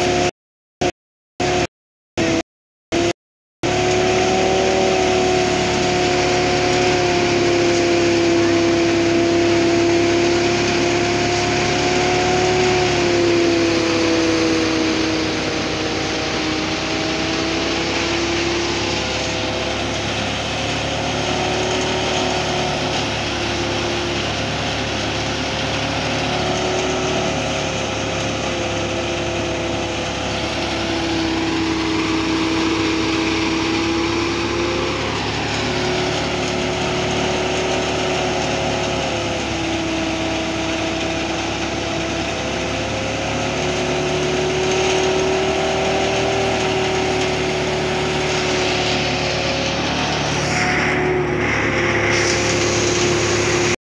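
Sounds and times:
threshing machine humming: 1.4s - 2.4s, 3.0s - 53.8s.

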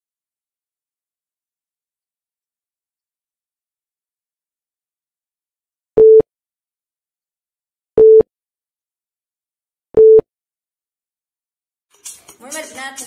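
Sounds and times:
short electronic beeps: 10.0s - 10.2s.

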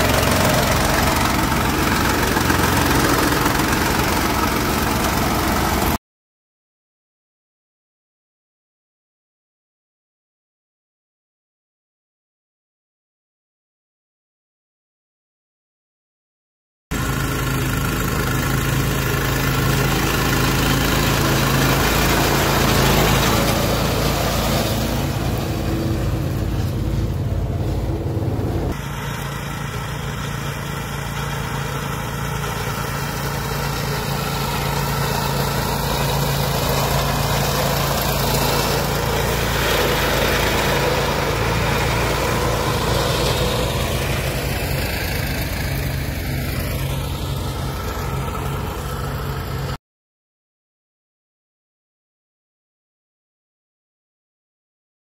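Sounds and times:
atv engine running: 0.0s - 6.0s, 17.0s - 49.8s
flail mower cutting grass: 0.0s - 6.0s, 16.9s - 49.8s.

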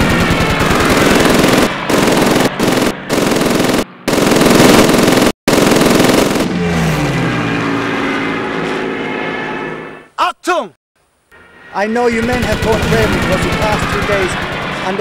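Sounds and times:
machine-gun fire: 0.0s - 6.6s, 12.2s - 14.8s.

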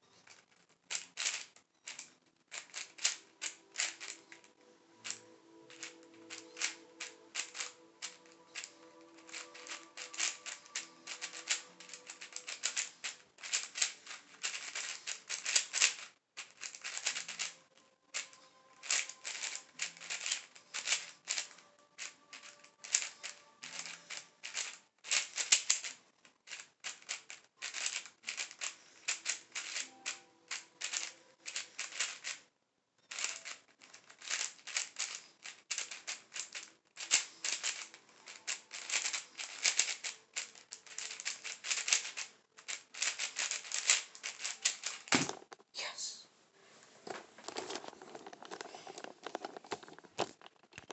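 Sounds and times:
speed cube clicking: 0.2s - 32.4s, 33.1s - 45.4s.

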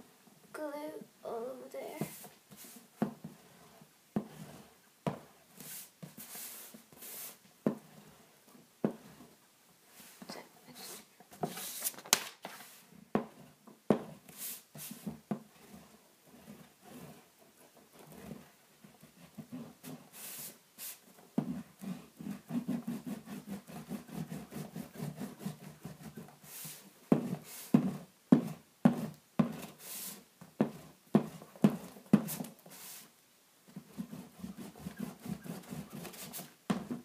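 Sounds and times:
glue stick scrubbing on paper: 21.8s - 27.9s, 33.8s - 37.0s.

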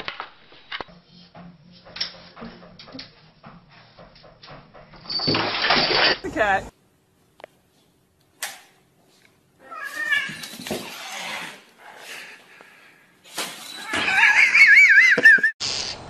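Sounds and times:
cat yowling: 9.6s - 10.5s.

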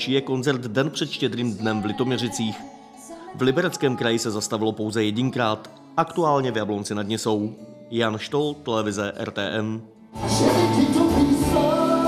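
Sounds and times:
person singing: 0.0s - 7.5s, 10.2s - 12.0s
live pop-rock band music: 10.1s - 12.0s.

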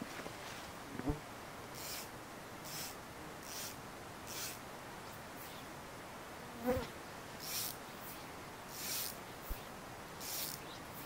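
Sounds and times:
insect buzzing past: 1.0s - 4.6s, 6.5s - 11.0s
high hiss: 1.7s - 5.7s, 7.4s - 11.0s.

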